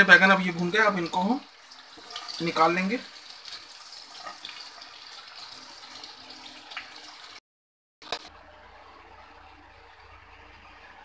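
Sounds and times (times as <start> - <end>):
oil sizzling in a frying pan: 0.0 - 7.4.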